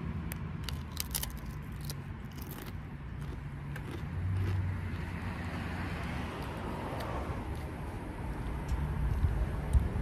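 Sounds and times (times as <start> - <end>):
chewing crunchy chip: 0.3 - 7.7.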